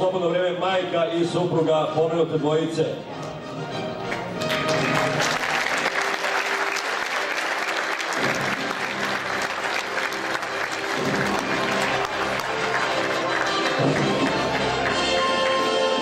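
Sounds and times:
audience applauding: 0:04.1 - 0:16.0.

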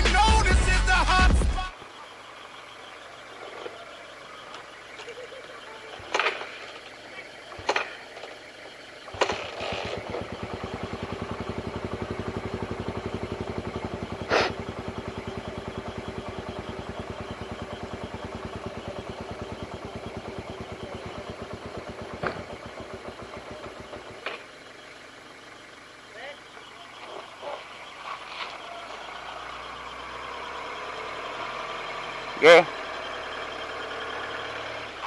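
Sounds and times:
motorcycle engine running: 0:00.0 - 0:35.0
clicks: 0:04.4 - 0:05.2.

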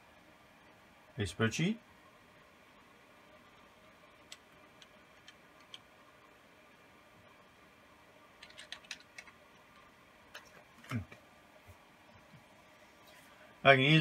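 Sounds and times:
computer keyboard typing: 0:03.5 - 0:05.9, 0:08.4 - 0:10.6.

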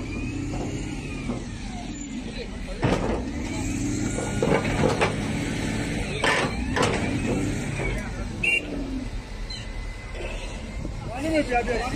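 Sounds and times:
heavy diesel engine running: 0:00.0 - 0:11.9
sharp knocks and clanks: 0:02.8 - 0:03.5, 0:04.1 - 0:05.4, 0:06.2 - 0:08.0.

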